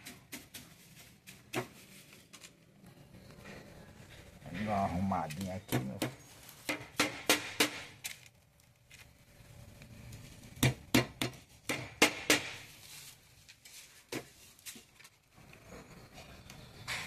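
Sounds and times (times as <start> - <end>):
hammer striking nails into wood: 5.7 - 8.0, 10.6 - 12.6.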